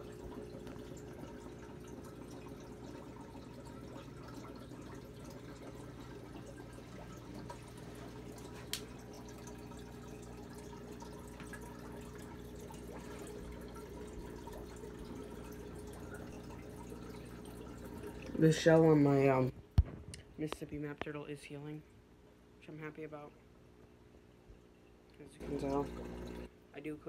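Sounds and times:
aquarium air bubbles gurgling: 0:00.0 - 0:19.5, 0:24.6 - 0:26.5
low steady hum: 0:00.0 - 0:27.0.

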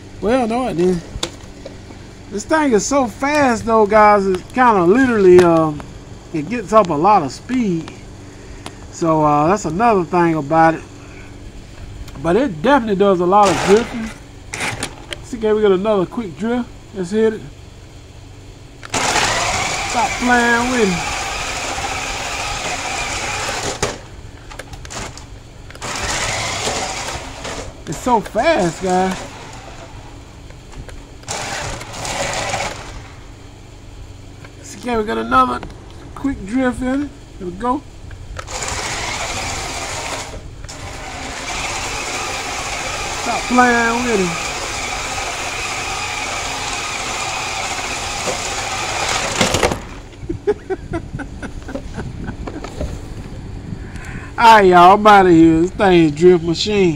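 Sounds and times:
small electric motor whining: 0:18.8 - 0:30.6, 0:31.2 - 0:33.4, 0:38.4 - 0:50.2.

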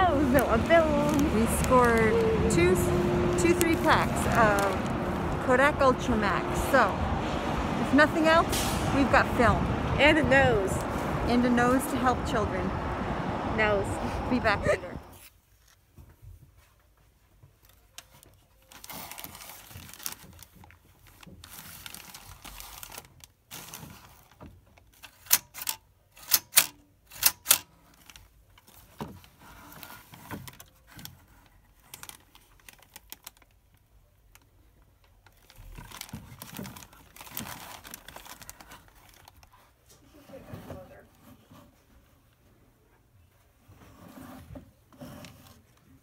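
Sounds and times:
plastic crinkling and rustling: 0:00.0 - 0:05.5, 0:15.2 - 0:25.8, 0:27.7 - 0:41.4.

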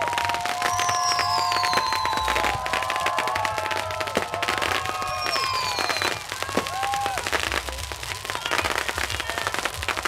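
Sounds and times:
fireworks crackling and popping: 0:00.0 - 0:10.0
fireworks whistling: 0:00.0 - 0:10.0.

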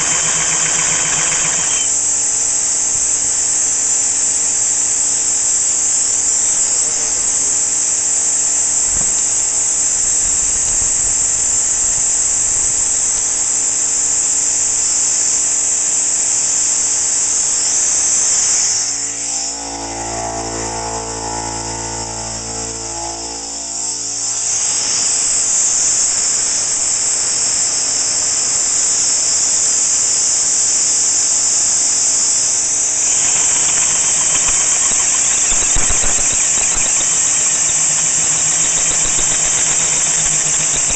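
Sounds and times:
drill hole saw cutting steel: 0:00.0 - 0:02.4, 0:18.0 - 0:27.2, 0:32.3 - 0:40.9
motor hum: 0:00.0 - 0:02.6, 0:17.6 - 0:27.9, 0:32.2 - 0:40.9
high-pitched air hiss: 0:00.0 - 0:02.7, 0:15.1 - 0:40.9.

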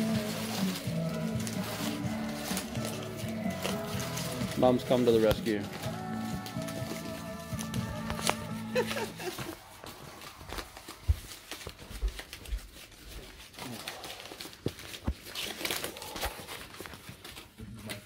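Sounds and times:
paper crinkling and tearing: 0:00.0 - 0:18.0.

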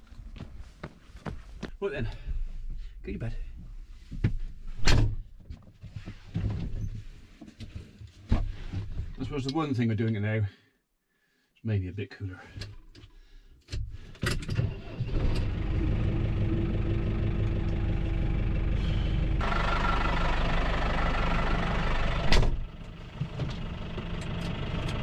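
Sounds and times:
tractor engine running: 0:14.8 - 0:25.0.

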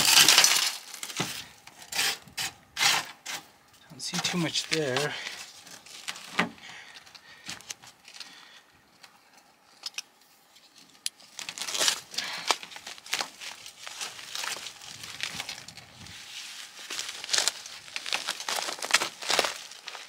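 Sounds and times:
duct tape tearing: 0:00.0 - 0:03.4, 0:11.1 - 0:15.8, 0:16.9 - 0:20.0
paper crinkling: 0:04.0 - 0:09.2, 0:10.8 - 0:20.0.

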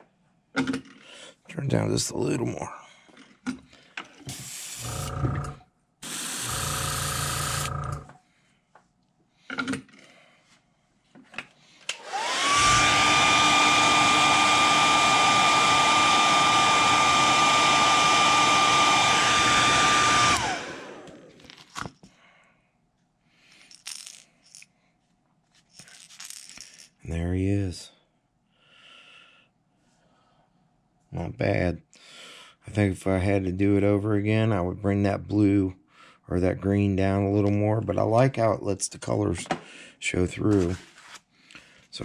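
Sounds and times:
hair dryer running: 0:06.0 - 0:07.9, 0:11.9 - 0:21.4.

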